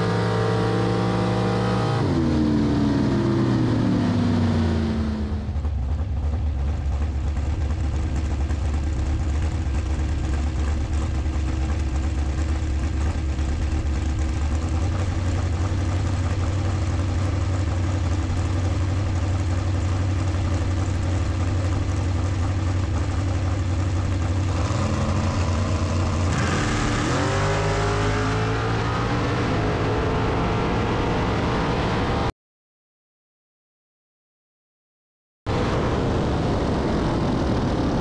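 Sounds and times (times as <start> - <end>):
engine revving up: 0.0 - 5.5, 24.4 - 32.3
dragster engines idling: 5.4 - 26.3.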